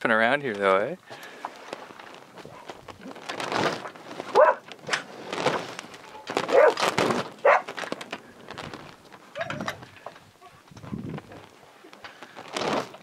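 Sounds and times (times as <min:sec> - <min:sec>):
dog barking: 0:04.3 - 0:04.6, 0:06.5 - 0:06.8, 0:07.4 - 0:07.7.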